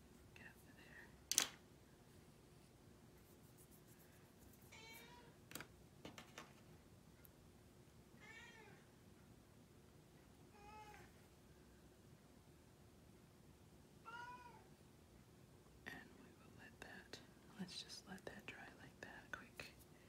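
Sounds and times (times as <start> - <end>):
cat meowing: 8.2 - 8.8, 14.1 - 14.7.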